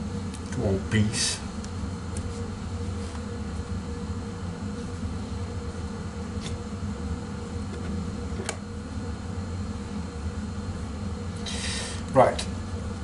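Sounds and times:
steady low hum: 0:00.0 - 0:13.0.

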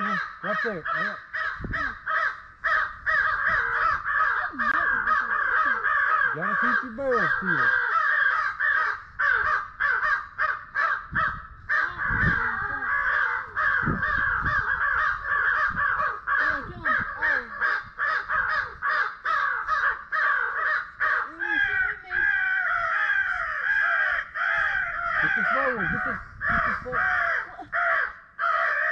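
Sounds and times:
crows cawing: 0:00.0 - 0:28.9.

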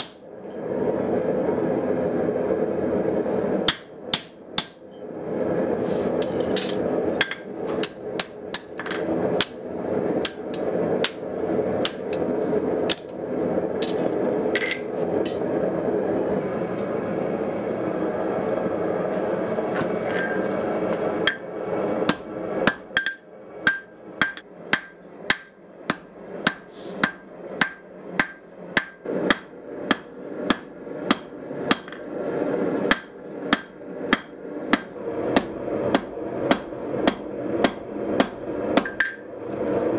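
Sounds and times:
forge roaring: 0:05.0 - 0:24.5, 0:28.9 - 0:39.9
hammer ringing on anvil: 0:22.7 - 0:30.6.

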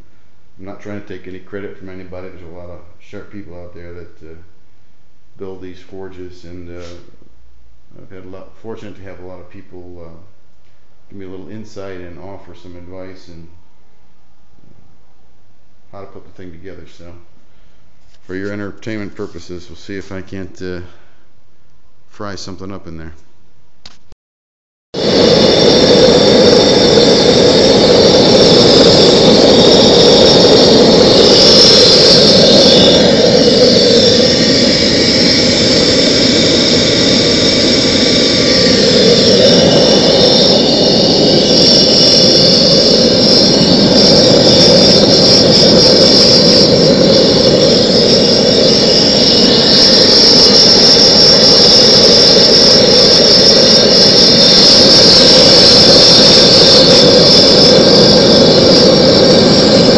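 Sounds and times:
gas burner flame hissing: 0:25.0 - 0:59.9.

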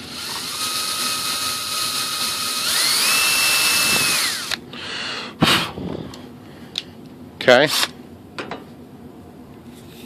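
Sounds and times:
cordless drill whining: 0:00.0 - 0:04.6.

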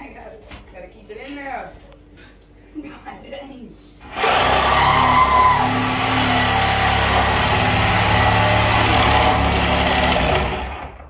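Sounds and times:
reciprocating saw cutting wood: 0:04.1 - 0:10.9.

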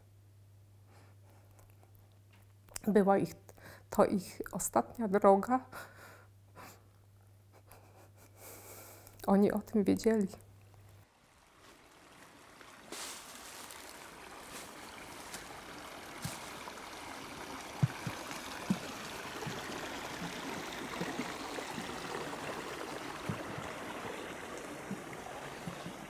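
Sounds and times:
water stream flowing: 0:11.0 - 0:26.0
soft knocks: 0:17.8 - 0:20.4.

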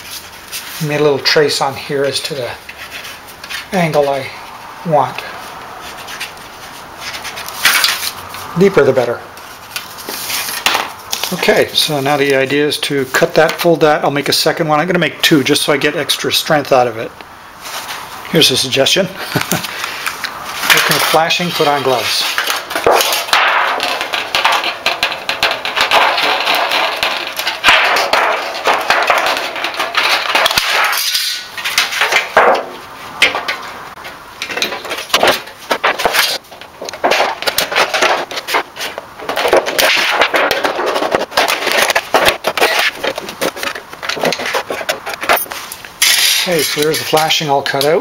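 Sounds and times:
metal sheet crinkling: 0:05.1 - 0:14.6, 0:19.6 - 0:47.6.

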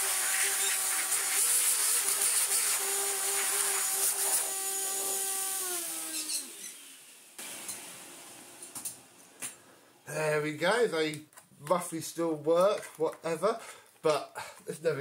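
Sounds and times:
power tool motor winding down: 0:00.0 - 0:07.2.

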